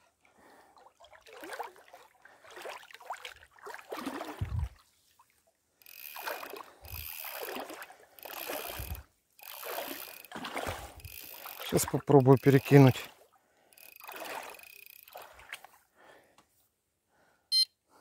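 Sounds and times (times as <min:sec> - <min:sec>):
fishing reel gears whining: 0:05.8 - 0:13.0, 0:13.7 - 0:15.4.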